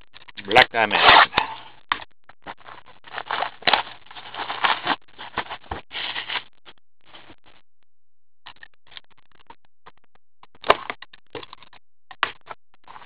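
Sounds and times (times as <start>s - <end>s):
plastic shrink wrap crinkling: 2.5s - 6.4s.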